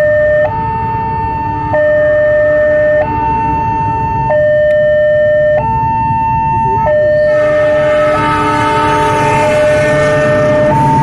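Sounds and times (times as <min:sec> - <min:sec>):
level crossing two-tone alarm: 0:00.0 - 0:11.0
train rushing: 0:07.2 - 0:11.0.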